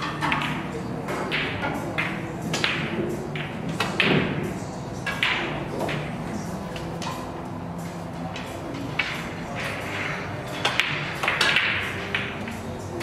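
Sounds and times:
low hum of hall: 0:00.0 - 0:13.0
pool balls clicking: 0:00.0 - 0:13.0.

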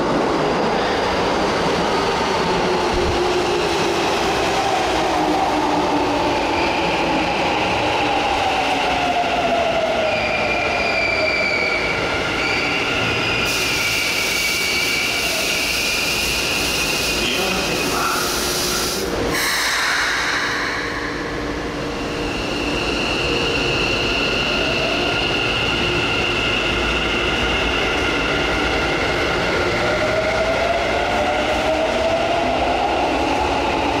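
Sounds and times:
burst of train noise: 0:13.4 - 0:23.3.

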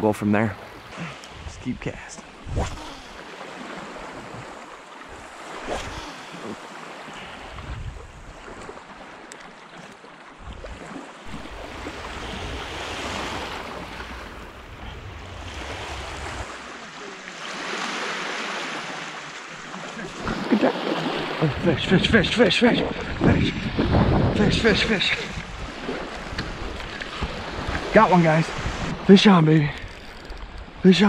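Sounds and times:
lake waves washing onto beach: 0:00.0 - 0:31.0
wind buffeting microphone: 0:01.3 - 0:02.8, 0:07.3 - 0:08.7, 0:10.4 - 0:16.7, 0:21.4 - 0:29.1.

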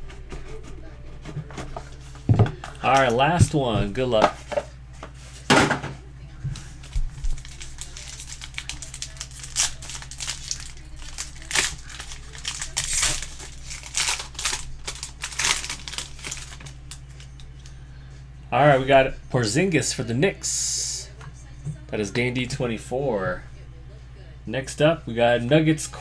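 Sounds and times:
foil wrapper tearing and crinkling: 0:06.8 - 0:17.5.

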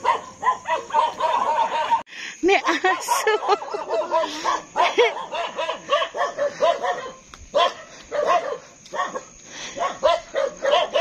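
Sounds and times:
dogs barking: 0:00.0 - 0:11.0.

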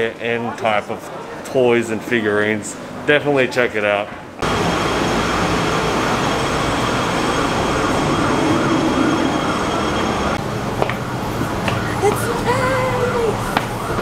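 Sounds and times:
traffic rumble and hiss: 0:01.8 - 0:14.0.

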